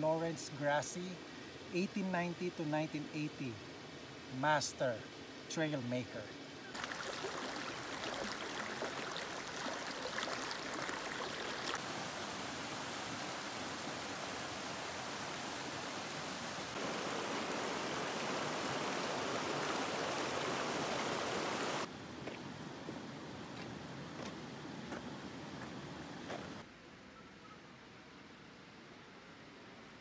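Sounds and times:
creek water rushing over rocks: 0:06.8 - 0:21.9.

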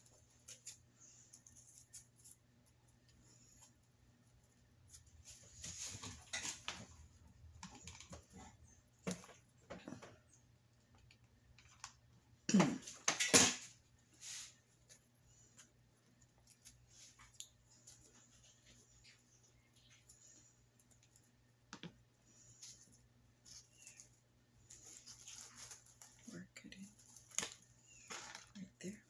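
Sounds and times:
artificial flowers rustling: 0:00.0 - 0:07.2, 0:14.0 - 0:15.8, 0:22.2 - 0:29.0.

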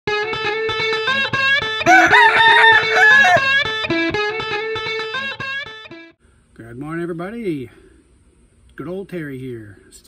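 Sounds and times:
plucked guitar riff: 0:00.1 - 0:06.2
rooster crowing: 0:01.8 - 0:03.6.

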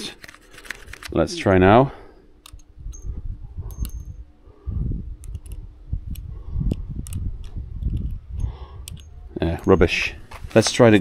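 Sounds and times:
small metallic clicks and taps: 0:05.2 - 0:09.1.

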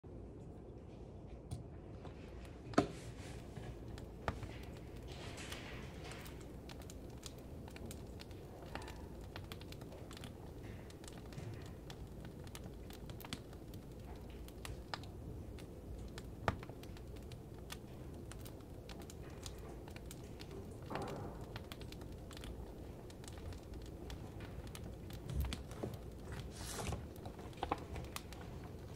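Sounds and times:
wood fire crackling: 0:00.2 - 0:28.9.

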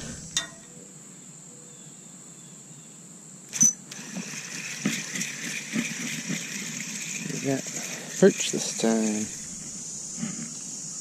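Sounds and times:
high insect buzz: 0:00.0 - 0:00.8, 0:03.4 - 0:11.0
fishing reel cranking: 0:03.5 - 0:10.2.

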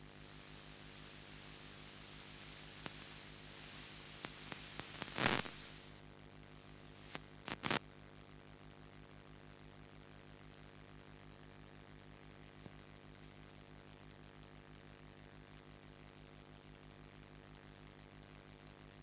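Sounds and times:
hiss: 0:00.0 - 0:06.0
faint room hum: 0:00.0 - 0:19.0.

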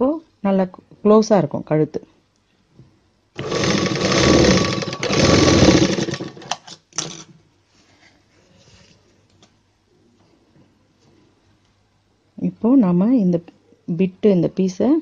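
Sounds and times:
sewing machine stitching: 0:03.4 - 0:07.2.

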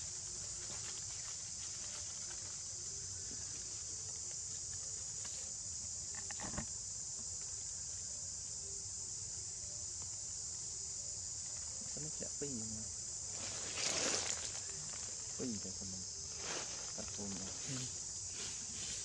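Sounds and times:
dry leaves rustling: 0:00.0 - 0:05.5, 0:13.2 - 0:19.0
insects droning: 0:00.0 - 0:19.0.

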